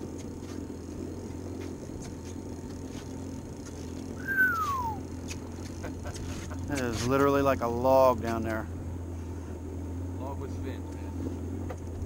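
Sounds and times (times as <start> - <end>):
outboard motor idling: 0.0 - 12.0
whistle-like falling call: 4.2 - 5.0.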